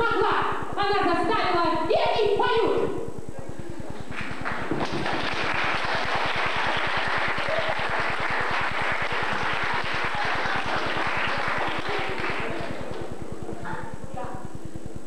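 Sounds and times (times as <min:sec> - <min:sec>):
audience applauding: 0:04.1 - 0:13.1.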